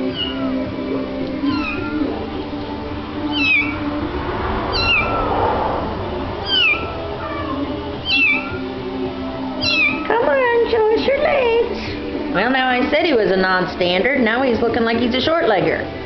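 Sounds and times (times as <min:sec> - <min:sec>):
kitten mewing: 0:00.0 - 0:00.6, 0:01.4 - 0:02.2, 0:06.5 - 0:08.6, 0:09.6 - 0:10.1.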